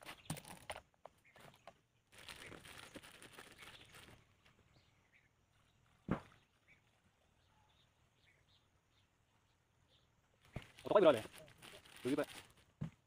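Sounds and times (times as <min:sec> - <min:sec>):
rustling and scraping: 0:00.0 - 0:04.6, 0:10.4 - 0:13.0
faint bird chirps: 0:01.2 - 0:12.0.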